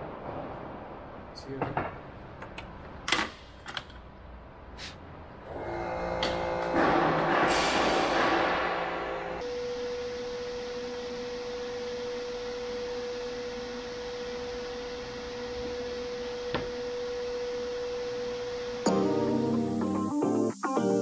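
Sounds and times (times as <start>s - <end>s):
steady pure tone: 8.8s - 21.0s.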